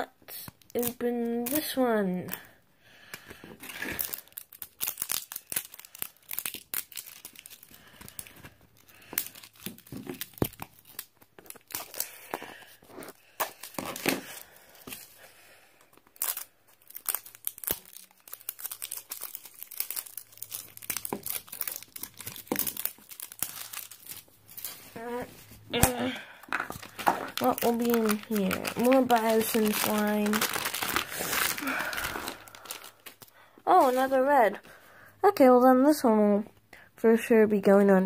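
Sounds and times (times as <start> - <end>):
plastic wrapping crinkling and tearing: 0.0 - 2.5, 3.4 - 34.8.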